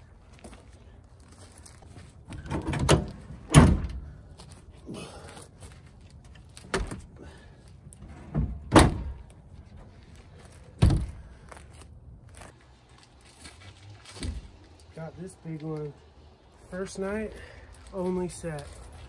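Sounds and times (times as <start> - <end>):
tailgate slamming shut: 2.4 - 4.1, 8.1 - 9.2, 10.8 - 11.2.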